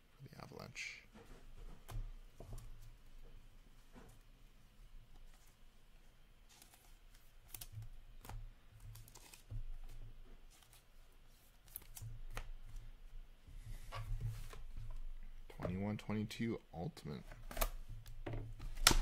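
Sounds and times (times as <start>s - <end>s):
low room hum: 0.0s - 19.0s
cards clicking and rustling: 8.9s - 9.5s, 11.7s - 12.5s.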